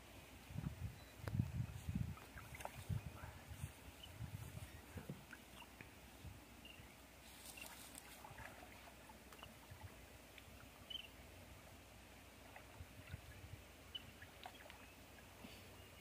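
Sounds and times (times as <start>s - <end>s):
person wading through water: 1.8s - 6.2s, 7.2s - 10.9s
small water splashes: 2.1s - 3.2s, 7.3s - 15.4s.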